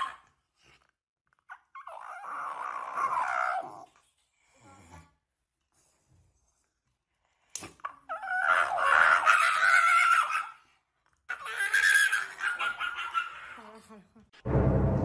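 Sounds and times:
dog screaming: 8.1s - 10.6s, 11.3s - 13.6s.

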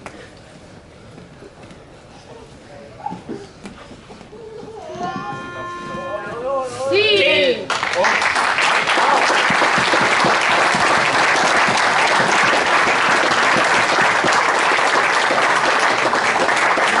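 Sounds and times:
crowd applauding: 7.7s - 17.0s.

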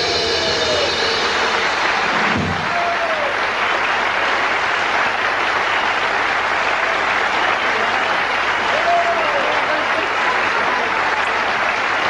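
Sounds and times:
live jazz music: 0.0s - 6.0s
audience applauding: 0.0s - 12.0s.

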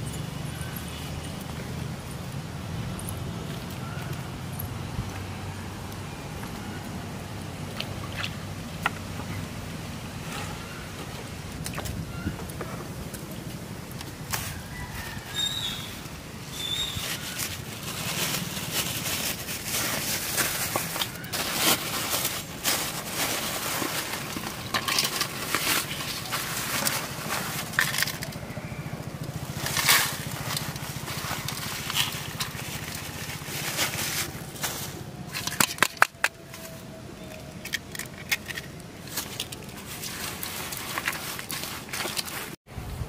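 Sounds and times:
plastic bag crinkling: 16.6s - 28.4s, 29.1s - 42.6s.

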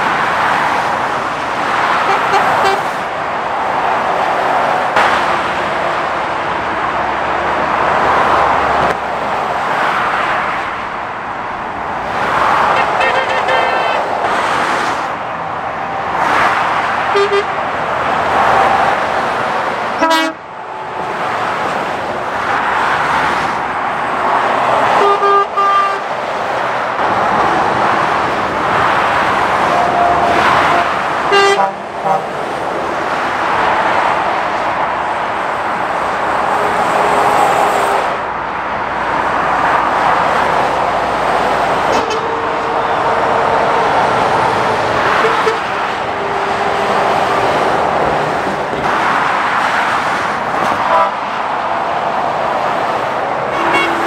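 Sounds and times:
motorway traffic: 0.0s - 54.0s
long horn blast: 2.0s - 2.9s, 17.1s - 17.6s, 20.0s - 20.4s, 25.0s - 26.0s, 30.2s - 32.4s, 41.9s - 47.8s, 50.9s - 51.2s, 53.5s - 54.0s
vehicle horn toots: 2.0s - 2.9s, 12.7s - 14.0s, 17.1s - 17.6s, 20.0s - 20.4s, 25.0s - 26.0s, 30.7s - 32.3s, 41.9s - 43.5s, 45.1s - 47.0s, 50.8s - 51.2s, 53.5s - 54.0s.

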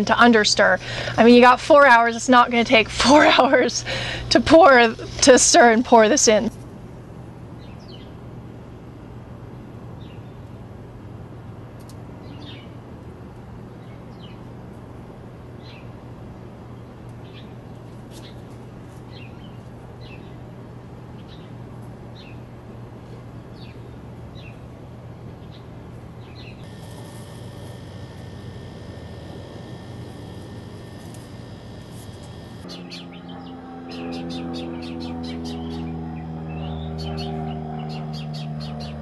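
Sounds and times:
low hum: 22.5s - 39.0s.

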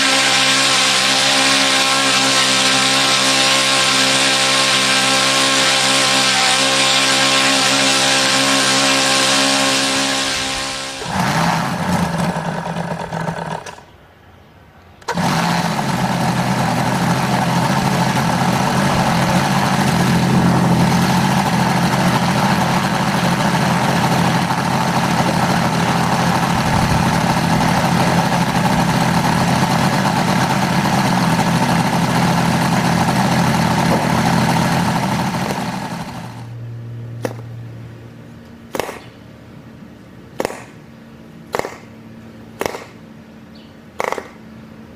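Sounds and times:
electric starter spinning engine: 0.0s - 13.9s, 15.0s - 36.6s
model engine running: 0.0s - 13.9s, 15.0s - 36.6s.

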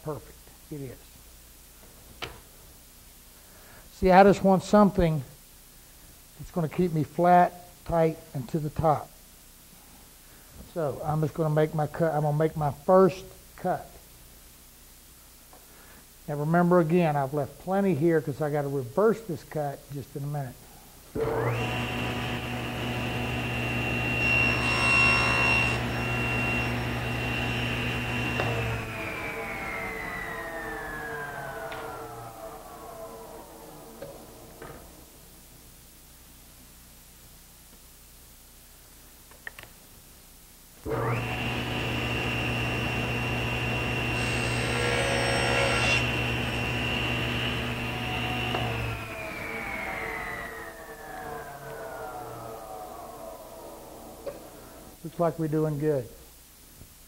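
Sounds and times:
table saw running: 21.2s - 34.9s, 40.8s - 54.6s
saw blade cutting wood: 41.0s - 50.3s.

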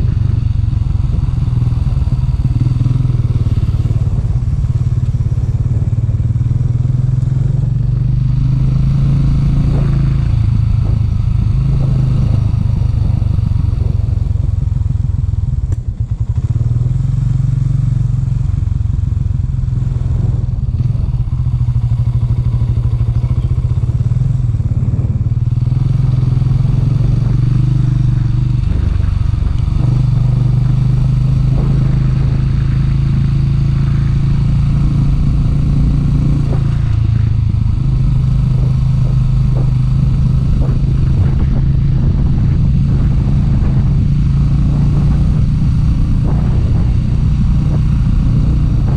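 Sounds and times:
motorcycle engine running: 0.0s - 48.9s.

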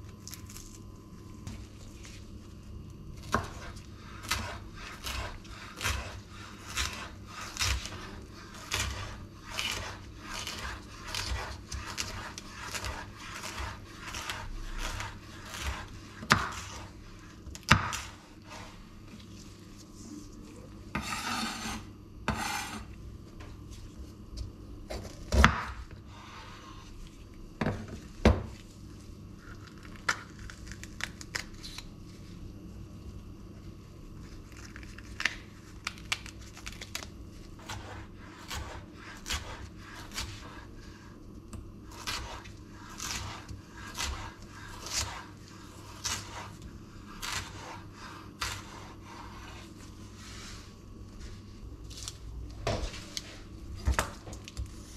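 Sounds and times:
knife chopping on a wooden board: 3.3s - 16.9s, 17.5s - 18.2s, 43.0s - 46.5s
knife scraping a board: 3.3s - 18.8s, 20.9s - 22.9s, 37.6s - 40.7s, 41.9s - 50.7s.

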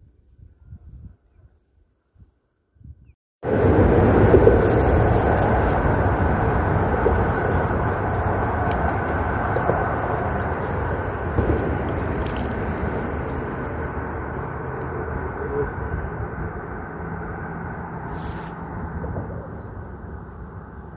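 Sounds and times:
engine rumble: 3.4s - 20.9s
high chirp: 3.5s - 14.6s.

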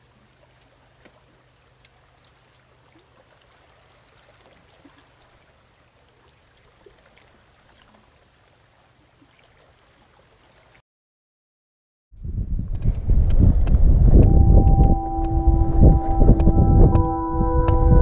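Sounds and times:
faint outdoor hiss: 0.0s - 10.8s.

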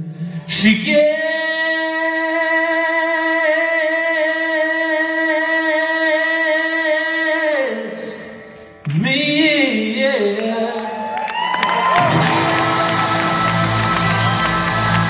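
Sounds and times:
singer holding long note: 11.8s - 15.0s.

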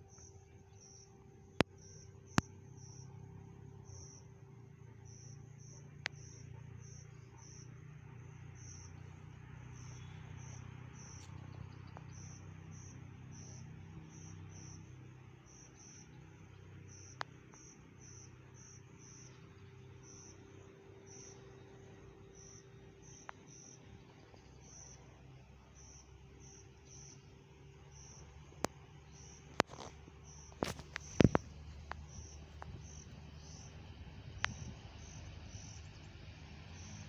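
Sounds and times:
crickets chirping: 0.0s - 37.0s
low steady rumble: 0.0s - 37.0s
sharp clicks: 28.6s - 33.7s.

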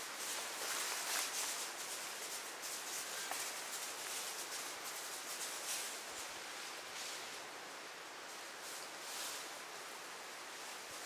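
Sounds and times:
outdoor rustling hiss: 0.0s - 11.0s.

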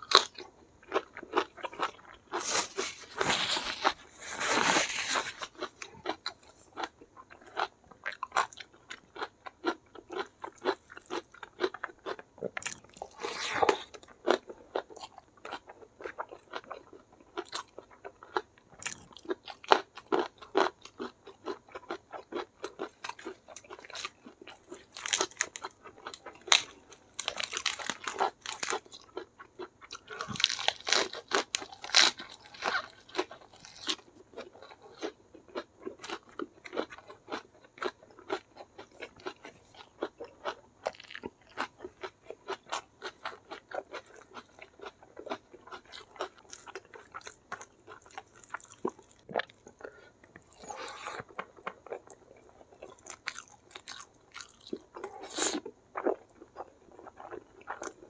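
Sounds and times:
crunching bites of lettuce: 17.4s - 40.1s, 52.8s - 56.4s
wet chewing: 21.4s - 58.0s.

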